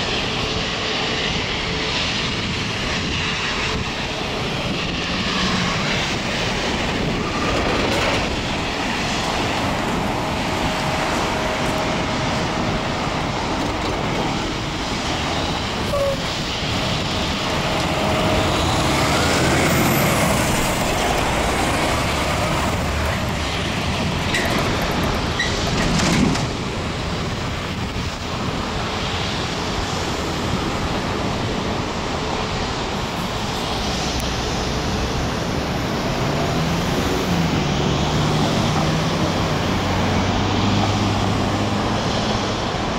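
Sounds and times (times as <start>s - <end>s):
cars and trucks driving: 0.0s - 42.9s
road noise: 0.0s - 42.9s
loud vehicle passing: 5.0s - 27.7s, 33.6s - 42.9s.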